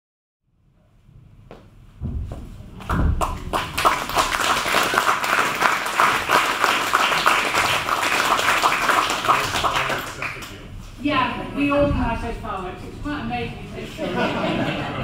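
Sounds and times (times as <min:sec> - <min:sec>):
audience applauding: 0:02.8 - 0:10.6.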